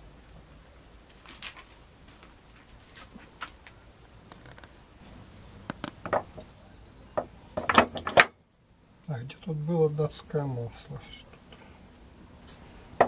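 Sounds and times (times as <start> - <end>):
objects knocking on wooden workbench: 6.0 - 6.5, 7.2 - 8.3.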